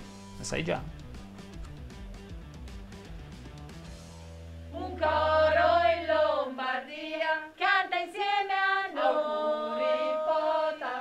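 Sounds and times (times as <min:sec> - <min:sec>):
voices singing together: 0:04.7 - 0:11.0.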